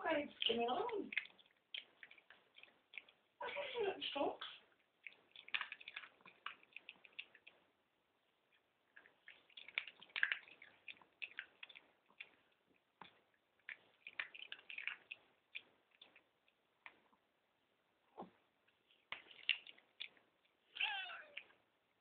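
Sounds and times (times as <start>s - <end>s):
dog crunching food: 0.1s - 3.4s, 4.6s - 7.7s, 8.4s - 17.2s, 18.8s - 21.6s.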